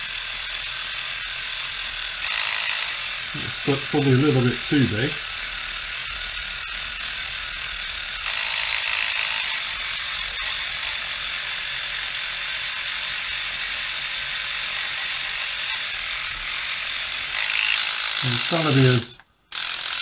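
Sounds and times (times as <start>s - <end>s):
sander high whirring buzz: 0.0s - 20.0s.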